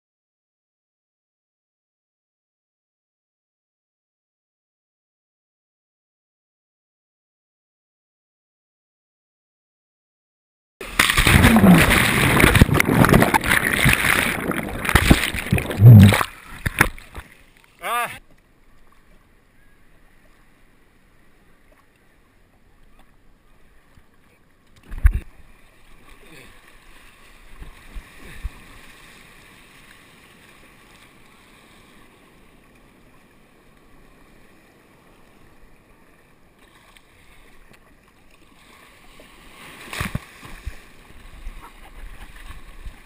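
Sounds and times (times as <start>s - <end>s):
water splashing around kayak: 10.8s - 43.0s.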